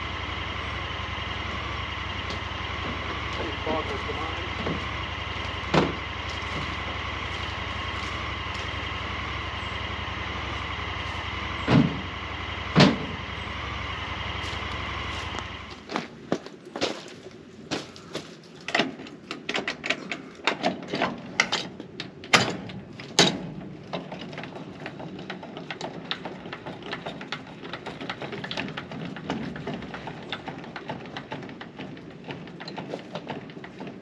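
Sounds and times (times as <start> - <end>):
steady low hum: 0.0 - 18.6.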